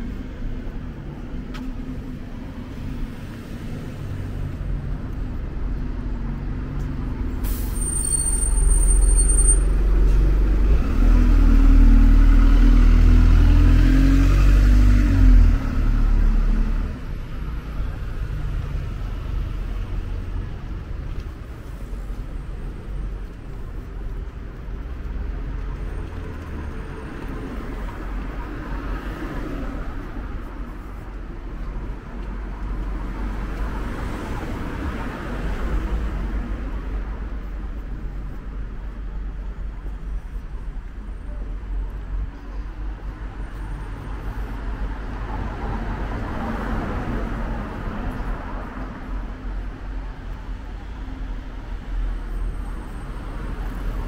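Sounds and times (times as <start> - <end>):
brief high hiss: 7.4 - 8.6.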